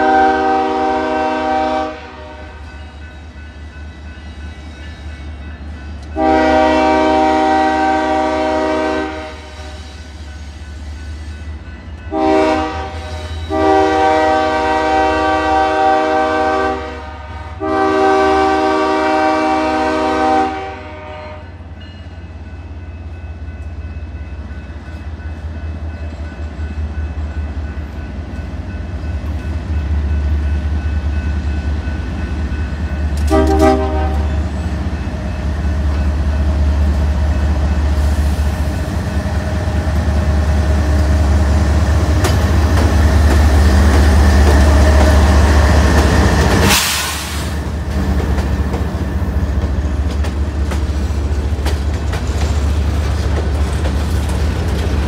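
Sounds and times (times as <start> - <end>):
train horn blast: 0.0 - 2.9, 6.1 - 9.8, 12.0 - 21.6, 33.2 - 34.5
diesel locomotive engine rumble: 0.0 - 55.0
freight cars rolling on rails: 21.7 - 55.0.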